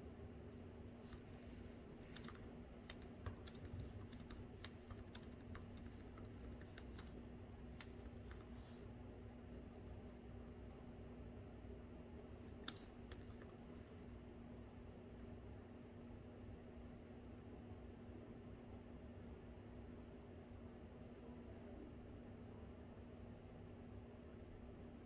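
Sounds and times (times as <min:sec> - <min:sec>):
low background hum: 0:00.0 - 0:25.0
laptop keyboard typing: 0:01.0 - 0:14.2.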